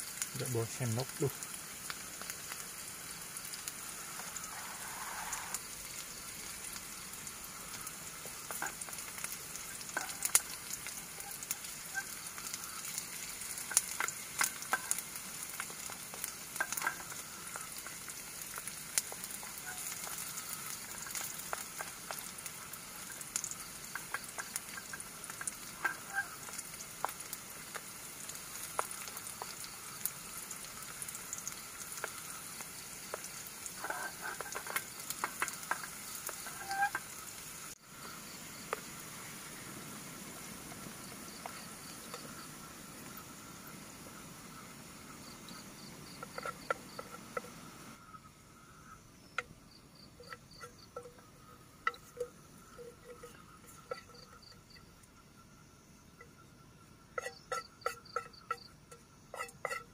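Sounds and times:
onions sizzling in oil: 0.0 - 59.9
wooden spatula scraping a pot: 33.7 - 37.2, 46.1 - 47.6, 50.2 - 54.8, 57.2 - 59.9.

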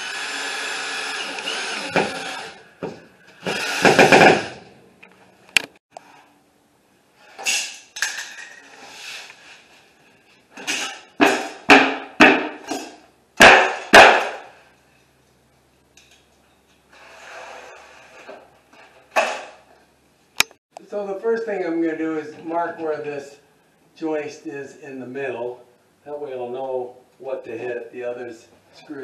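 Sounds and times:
cordless driver spinning screw: 0.0 - 2.5
drywall scraping on tile floor: 16.9 - 19.5.

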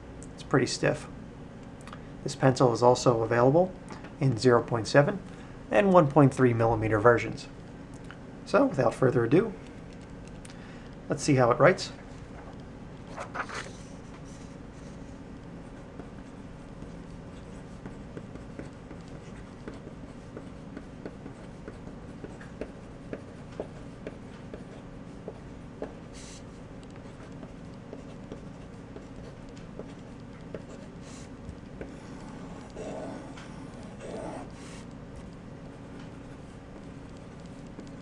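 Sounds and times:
pencil writing on paper: 15.6 - 38.0.

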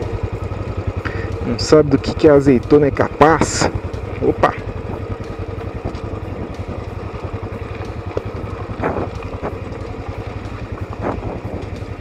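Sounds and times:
motorcycle engine running: 0.0 - 12.0
wind rumbling on microphone: 4.7 - 12.0.

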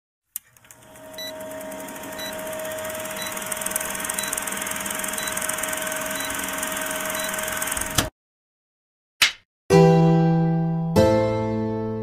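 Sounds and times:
film projector rattle: 0.5 - 8.1.

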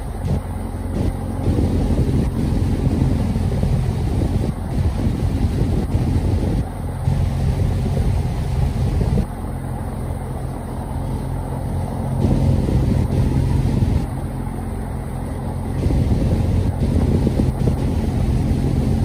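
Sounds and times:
boat engine droning: 0.0 - 19.0.

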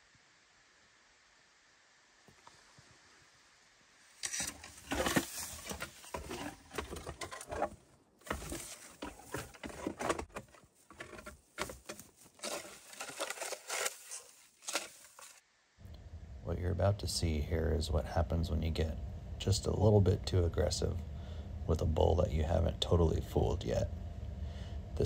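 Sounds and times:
bone scraping through brush: 4.1 - 15.4.

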